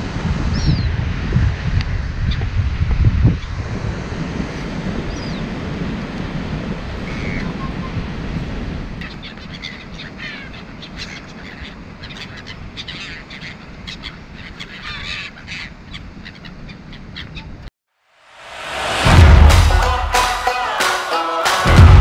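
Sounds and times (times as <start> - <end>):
surf rushing: 0.0 - 13.9, 18.1 - 22.0
wind: 0.0 - 19.1
gulls calling: 7.0 - 8.2, 8.8 - 17.7.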